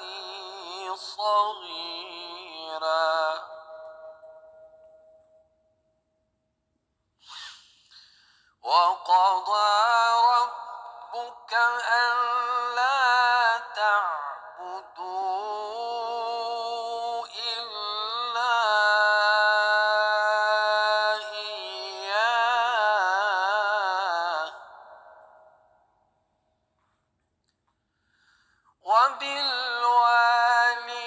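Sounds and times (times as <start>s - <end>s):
person breathing: 7.2s - 8.6s, 27.9s - 28.8s.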